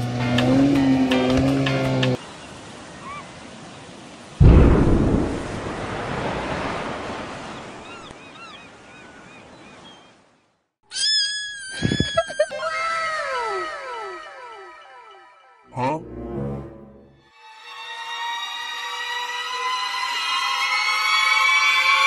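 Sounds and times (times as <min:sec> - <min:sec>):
explosion blast rumbling: 0:04.4 - 0:07.1.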